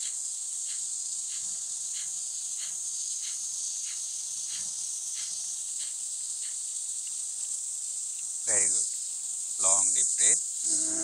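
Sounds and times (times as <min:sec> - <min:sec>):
forceful breaths through nose: 0:00.0 - 0:06.6
insects droning: 0:00.0 - 0:11.0.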